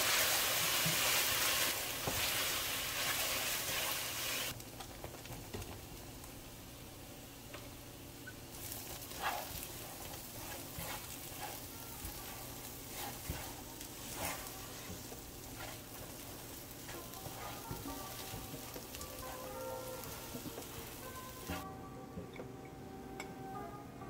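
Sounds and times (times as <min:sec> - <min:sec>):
spatula scraping a pan: 0:00.0 - 0:04.5, 0:08.6 - 0:20.6
food sizzling in a frying pan: 0:00.0 - 0:04.6, 0:08.2 - 0:21.6.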